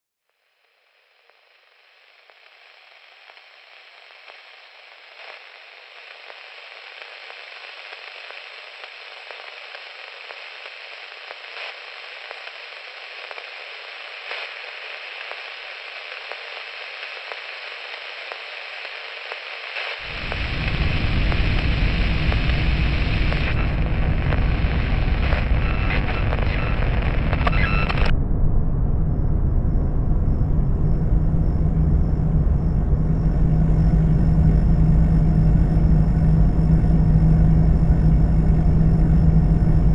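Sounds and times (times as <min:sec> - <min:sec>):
crackling hiss with pops: 0:00.2 - 0:28.1, 0:30.4 - 0:39.9
loud low rumble: 0:27.7 - 0:39.9.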